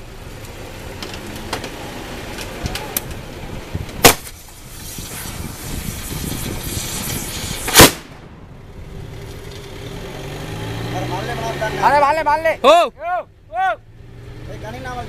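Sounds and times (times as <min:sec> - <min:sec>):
vehicle engine: 0:00.0 - 0:15.0
steady hiss: 0:00.1 - 0:09.8
firecracker bang: 0:04.0 - 0:08.6.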